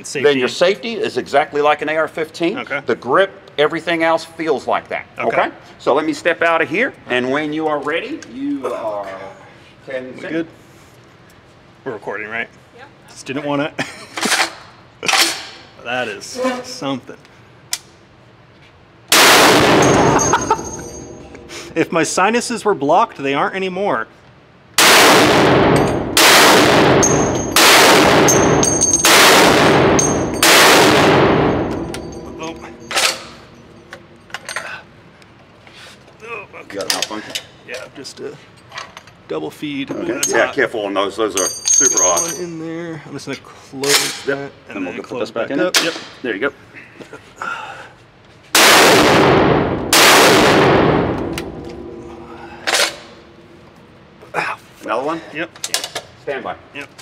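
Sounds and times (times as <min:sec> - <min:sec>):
rifle shots echoing indoors: 0:19.1 - 0:21.2, 0:24.8 - 0:33.6, 0:48.6 - 0:53.2
brass casings hitting floor: 0:19.1 - 0:21.9, 0:25.6 - 0:34.6.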